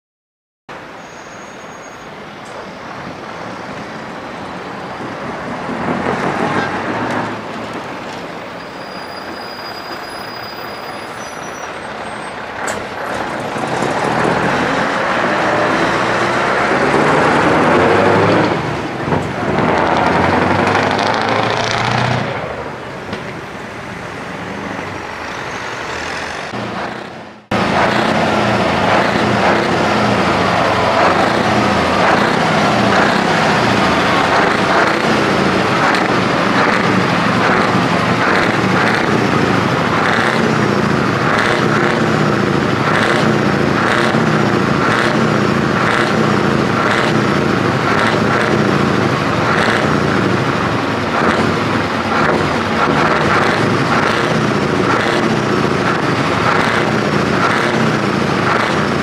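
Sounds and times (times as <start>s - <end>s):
truck engine pulling away: 8.5s - 59.0s
diesel truck engine running: 11.8s - 59.0s.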